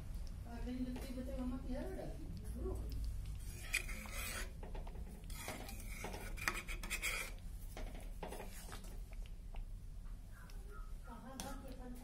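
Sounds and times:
spoon scraping metal pan: 3.4s - 4.6s, 5.2s - 7.4s.

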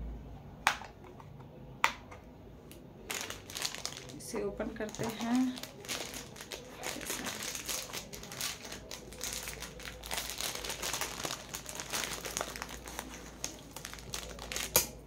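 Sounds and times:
sharp packaging crack: 3.1s - 4.2s, 4.9s - 15.0s
packaging crinkling and rustling: 3.1s - 15.0s.

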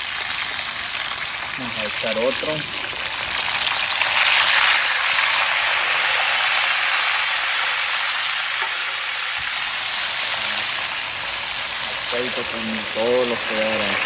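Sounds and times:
fish deep-frying in hot oil: 0.0s - 14.0s.

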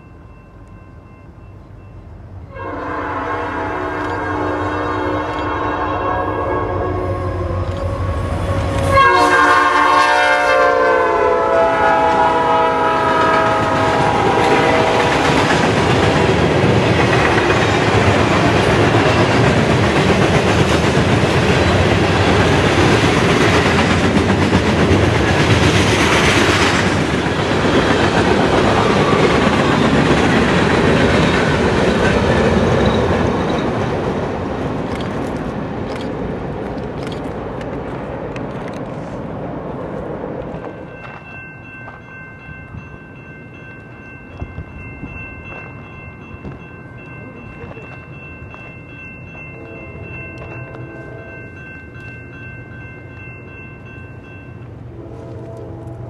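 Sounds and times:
locomotive horn: 2.5s - 15.4s, 49.5s - 51.6s, 54.9s - 56.0s
freight train wheels clacking: 11.2s - 54.7s.

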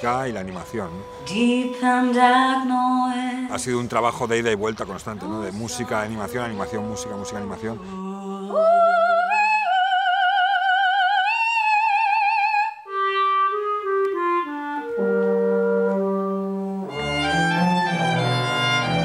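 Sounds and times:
instrumental ensemble: 0.0s - 2.2s, 12.8s - 19.0s
woman singing with vibrato: 1.1s - 3.5s, 5.2s - 12.9s.

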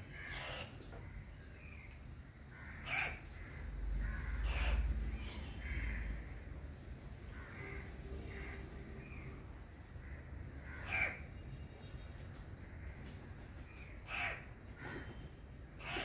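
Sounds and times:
crows cawing: 0.0s - 1.8s, 2.4s - 6.5s, 7.3s - 9.3s, 9.9s - 11.3s, 14.0s - 15.2s, 15.8s - 16.0s.

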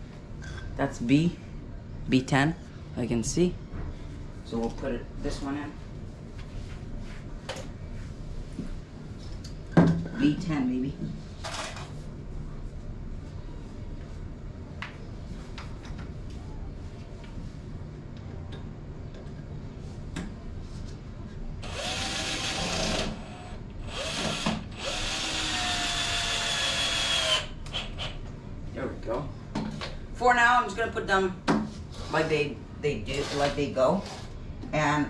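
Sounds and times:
power drill whining: 21.6s - 27.5s.

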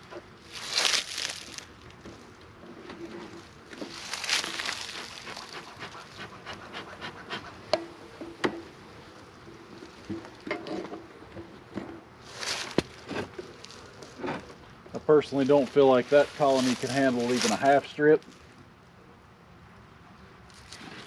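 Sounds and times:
bellows smoker puffs: 4.4s - 7.8s.

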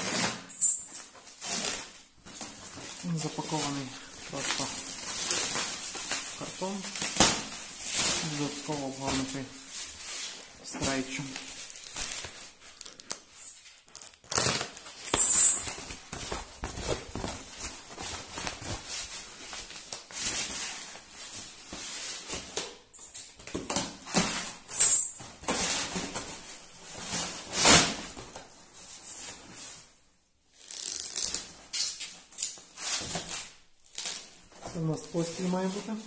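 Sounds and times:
plastic film and cardboard crinkling: 0.0s - 36.0s
tearing of packaging: 10.2s - 15.9s.

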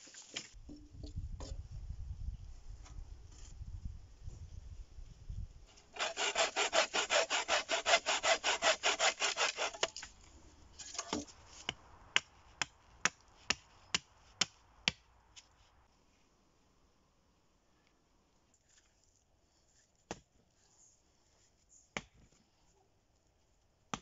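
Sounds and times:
hand saw cutting wood: 5.8s - 10.2s.

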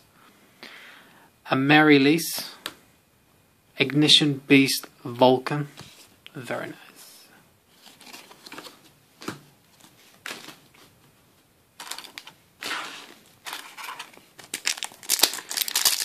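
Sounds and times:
foil pack rustling: 11.8s - 16.0s
trading cards being handled: 11.8s - 16.0s.

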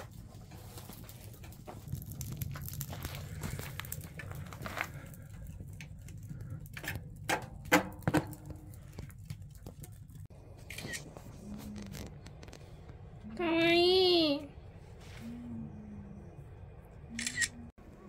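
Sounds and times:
wood fire crackling and popping: 0.0s - 13.5s
steady low rumble: 0.0s - 18.0s.

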